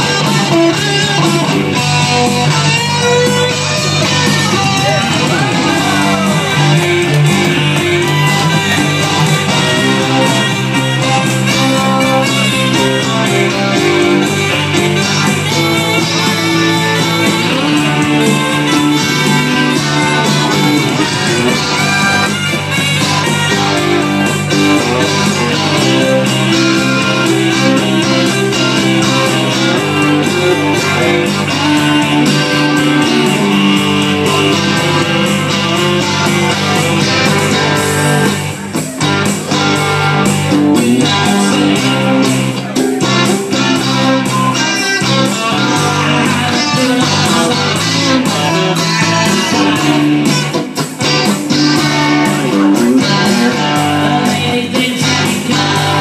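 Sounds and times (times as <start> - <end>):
keyboard: 0.0 - 56.0
strummed guitar: 0.0 - 56.0
man singing into a microphone: 4.5 - 6.7, 40.6 - 50.4, 51.7 - 56.0.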